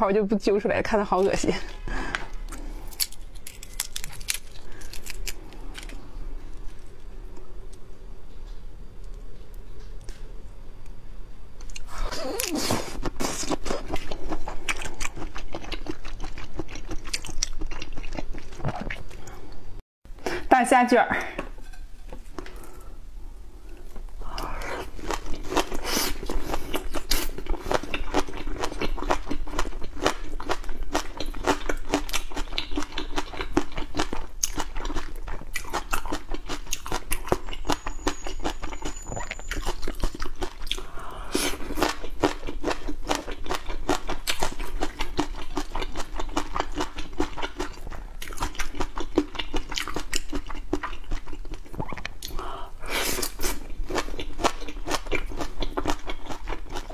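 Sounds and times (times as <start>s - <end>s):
biting and chewing: 2.1s - 7.1s, 11.6s - 19.4s, 24.4s - 52.4s, 53.0s - 56.9s.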